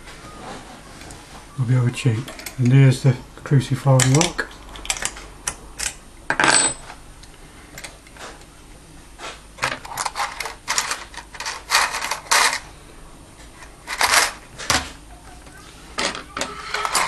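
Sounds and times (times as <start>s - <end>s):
metal tools clinking and scraping: 16.0s - 17.0s.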